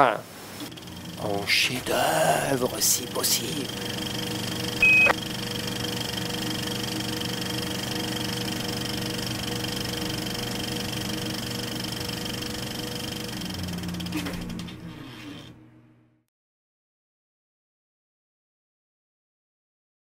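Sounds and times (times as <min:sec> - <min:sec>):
steady droning hum: 0:00.2 - 0:16.2.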